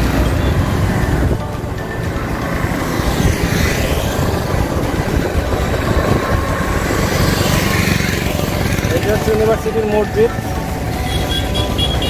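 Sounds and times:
road noise on wet road: 0.0s - 12.0s
wind buffeting microphone: 2.9s - 9.2s.

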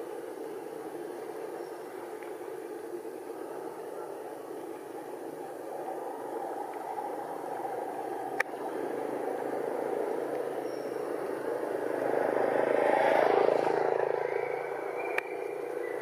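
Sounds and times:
vehicle engine passing by: 8.8s - 16.0s.

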